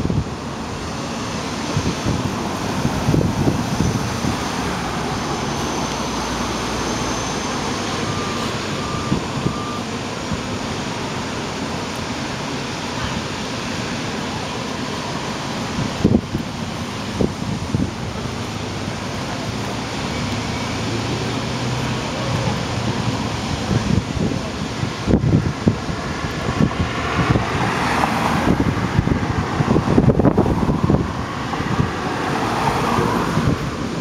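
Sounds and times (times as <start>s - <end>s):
bus engine running: 0.0s - 34.0s
traffic noise: 0.0s - 34.0s
short beeps: 6.8s - 9.9s.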